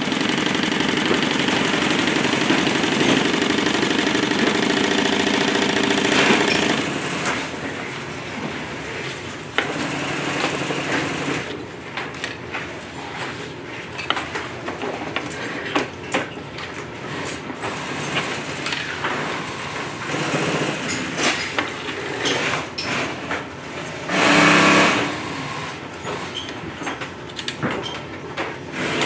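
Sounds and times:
sewing machine running: 0.0 - 7.6, 9.6 - 11.6, 17.7 - 21.1, 23.9 - 26.3, 28.7 - 29.0.

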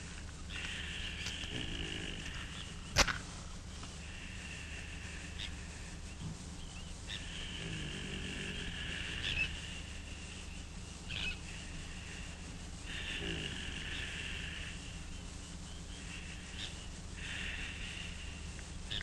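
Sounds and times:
steady high chirring: 0.0 - 19.0
man snoring: 1.2 - 2.4, 7.4 - 9.4, 12.9 - 14.8
bird chirps: 8.6 - 12.1, 13.9 - 19.0.

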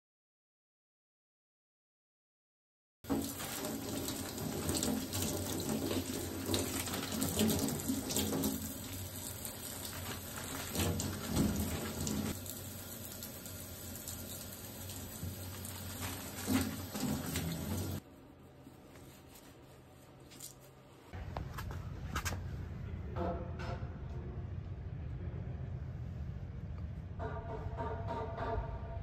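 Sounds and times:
paper being soaked and squeezed: 3.1 - 18.0, 18.8 - 21.1.

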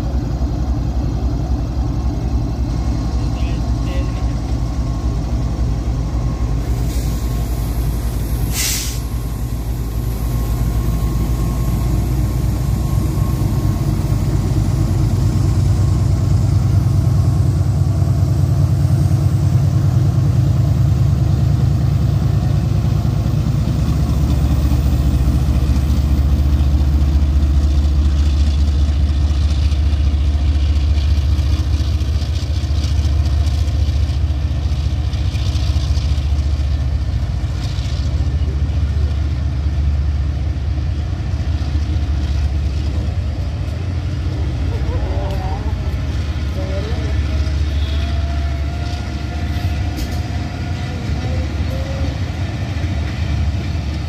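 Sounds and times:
diesel locomotive engine throbbing: 0.0 - 54.0
short hiss: 6.8 - 9.1.

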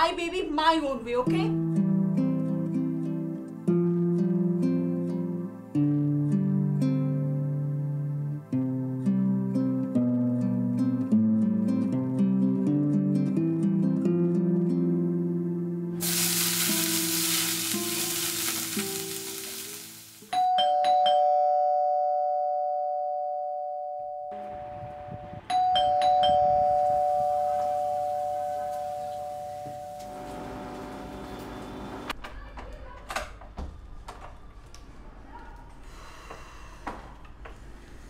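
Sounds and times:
soft guitar music: 1.2 - 20.3, 24.3 - 32.0
food sizzling in a pan: 16.0 - 20.3
doorbell chime: 20.3 - 24.6, 25.5 - 30.3.

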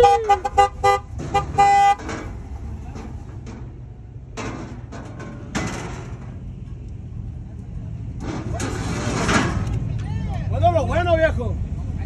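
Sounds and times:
vehicle horn honking: 0.0 - 2.1.

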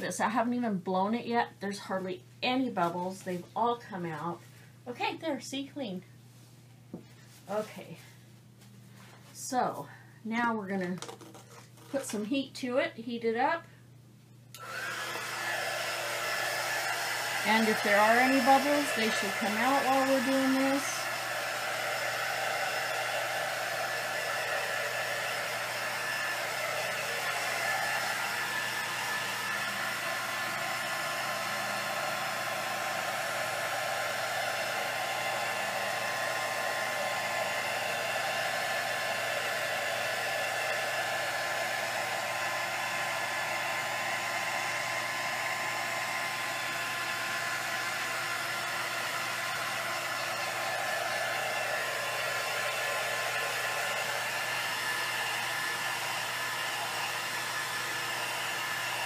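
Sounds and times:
heat gun blowing: 14.5 - 59.0.

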